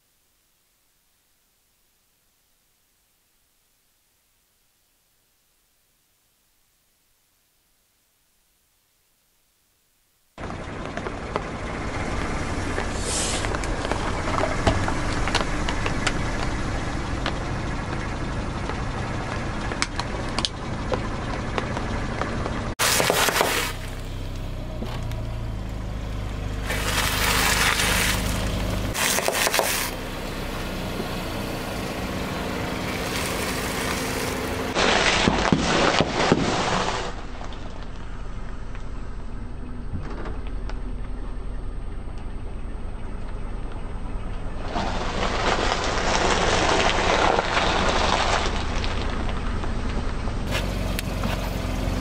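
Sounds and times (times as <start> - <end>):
tyre crunching dry noodles: 22.8 - 23.9, 26.6 - 30.0, 32.7 - 37.1, 44.7 - 49.1
tyre crushing plastic toys: 22.8 - 23.9, 26.6 - 30.0, 33.0 - 37.2, 44.7 - 49.3
low rumble: 36.8 - 52.0.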